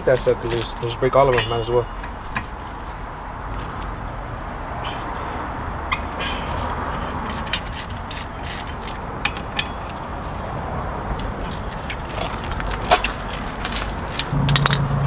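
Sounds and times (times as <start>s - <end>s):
low steady hum: 14.3s - 15.0s.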